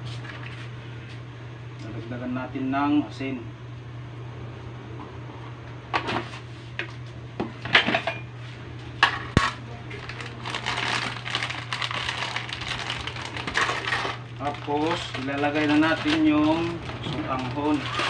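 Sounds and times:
steady low hum: 0:00.0 - 0:18.0
rough rustling and scraping: 0:10.5 - 0:18.0.

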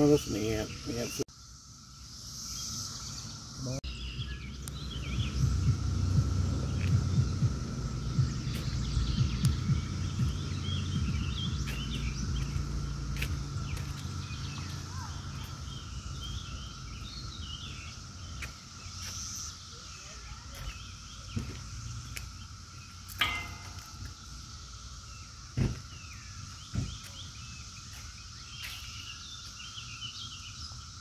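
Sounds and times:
cicada chorus drone: 0:00.0 - 0:31.0
songbirds chirping: 0:00.0 - 0:31.0
low rumble on microphone: 0:04.0 - 0:18.4.

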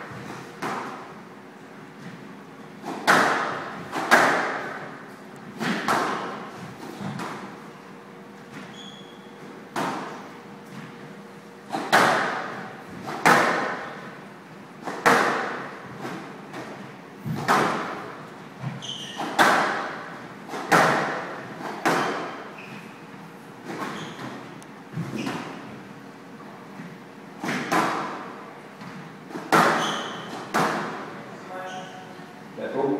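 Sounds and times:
squash ball hits echoing: 0:00.5 - 0:01.1, 0:02.8 - 0:05.0, 0:05.6 - 0:07.6, 0:09.7 - 0:10.2, 0:11.7 - 0:14.2, 0:14.8 - 0:18.2, 0:19.1 - 0:22.5, 0:27.4 - 0:28.4, 0:29.3 - 0:31.2
shoes squeaking on court: 0:08.4 - 0:11.1, 0:18.6 - 0:19.5, 0:21.4 - 0:25.8, 0:28.8 - 0:30.5, 0:31.4 - 0:32.2.

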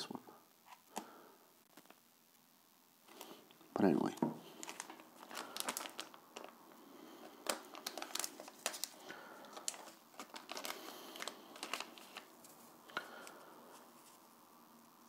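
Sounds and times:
plastic bag crinkling: 0:03.0 - 0:14.2.

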